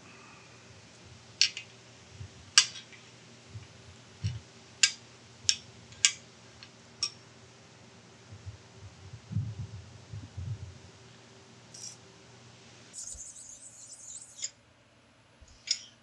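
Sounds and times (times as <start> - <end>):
metallic clicks of steel parts: 15.6 - 16.0.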